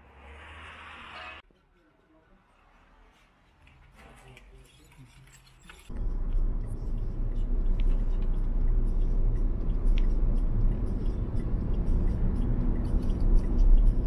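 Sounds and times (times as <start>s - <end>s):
car rumbling on the move: 0.0s - 1.4s, 5.9s - 14.0s.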